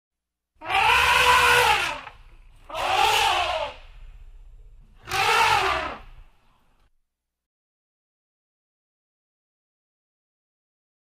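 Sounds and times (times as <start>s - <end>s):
elephant trumpeting: 0.6s - 4.0s, 5.0s - 6.2s
low rumble: 3.7s - 5.0s.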